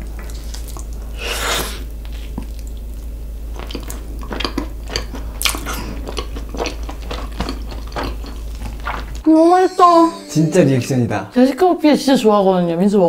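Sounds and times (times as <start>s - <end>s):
chewing mouth sounds: 2.1s - 9.2s.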